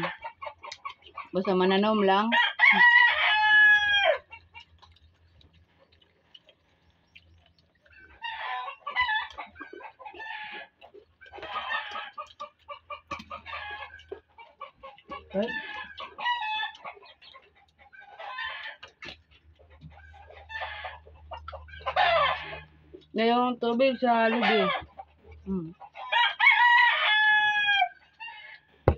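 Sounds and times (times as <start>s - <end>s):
chickens clucking: 0.0s - 2.3s, 3.9s - 26.3s
rooster crowing: 2.3s - 4.3s, 21.8s - 22.7s, 24.3s - 24.9s, 26.0s - 28.6s.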